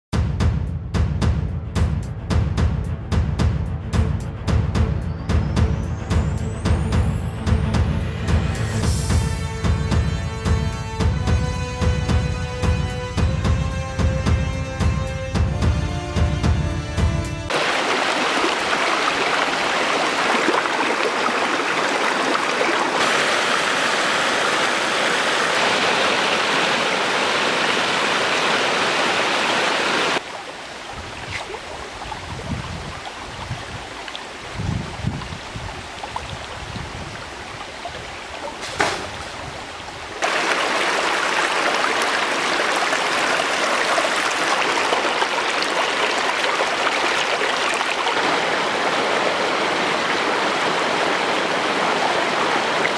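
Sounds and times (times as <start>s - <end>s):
stream rushing over stones: 17.5s - 52.9s.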